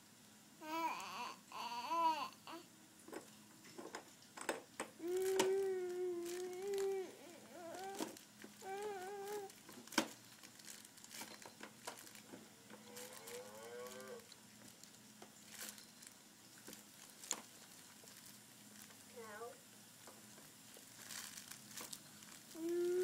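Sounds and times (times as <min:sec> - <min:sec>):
baby cooing: 0:00.6 - 0:02.7, 0:05.0 - 0:09.6, 0:12.9 - 0:14.3, 0:22.5 - 0:23.0.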